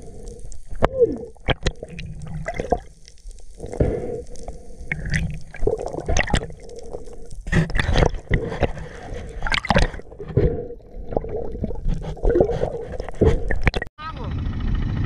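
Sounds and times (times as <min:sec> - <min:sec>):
faint steady hum: 0:00.0 - 0:07.5
water gurgling and sloshing: 0:00.0 - 0:13.9
splashes and knocks: 0:07.5 - 0:13.9.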